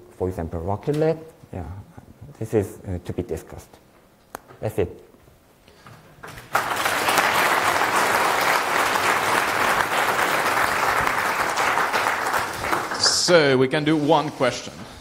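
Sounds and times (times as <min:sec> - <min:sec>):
audience applauding: 0:06.3 - 0:13.5.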